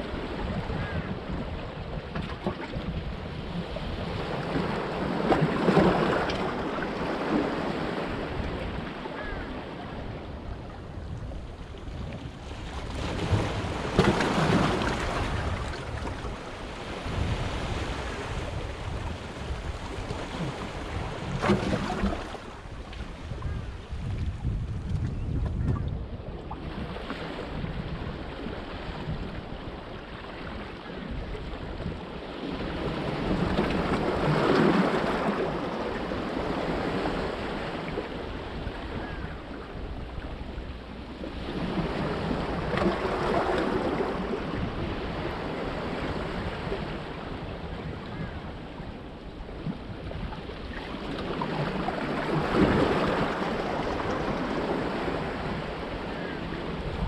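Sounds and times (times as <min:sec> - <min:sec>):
wind buffeting microphone: 0:00.0 - 0:29.9, 0:41.3 - 0:50.4, 0:51.0 - 0:57.0.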